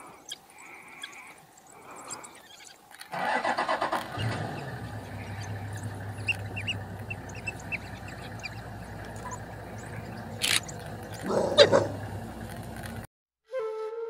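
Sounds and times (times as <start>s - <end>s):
wild dog pups squeaky chirps: 0.2s - 12.1s
low engine hum: 3.4s - 13.1s.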